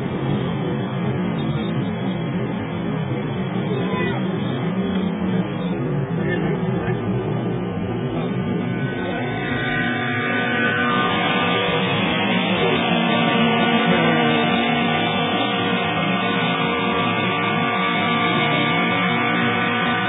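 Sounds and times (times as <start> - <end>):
guitar music: 8.5 - 20.0.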